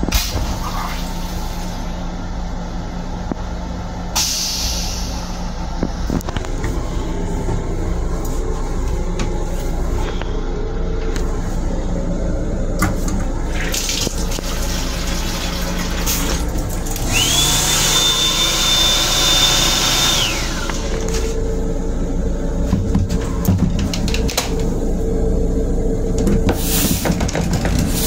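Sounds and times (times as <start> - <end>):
railcar low hum: 0.0 - 17.7, 18.9 - 28.0
motor whine: 16.3 - 23.5.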